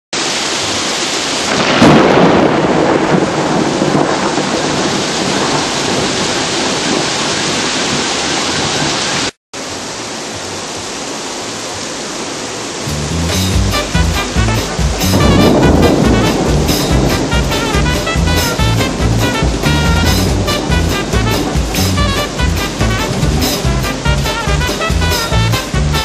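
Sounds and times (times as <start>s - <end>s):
heavy rain falling: 0.2s - 26.0s
loud thunderclap: 1.4s - 7.6s, 13.0s - 26.0s.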